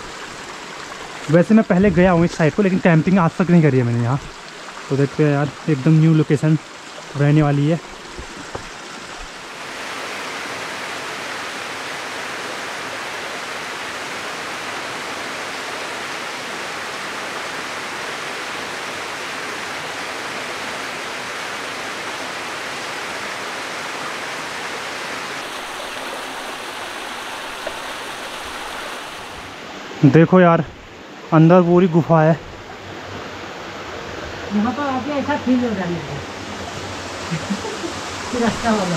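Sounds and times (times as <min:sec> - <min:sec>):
water rushing over rocks: 0:00.0 - 0:38.9.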